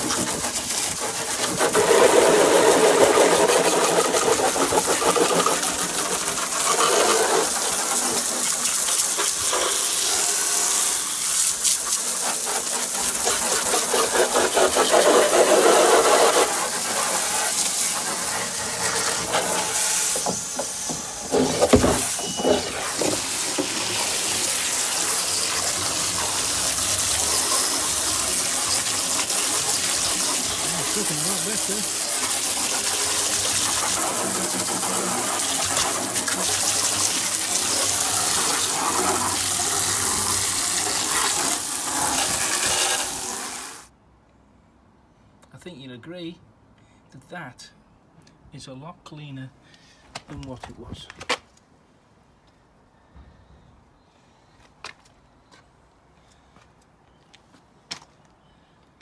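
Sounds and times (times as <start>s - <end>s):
hose spray hissing and splashing: 0.0s - 43.9s.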